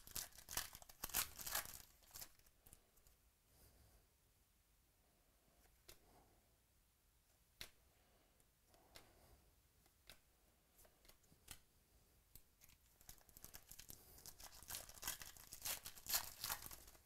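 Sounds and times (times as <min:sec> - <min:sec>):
foil wrapper tearing and crinkling: 0:00.0 - 0:02.5, 0:13.0 - 0:17.0.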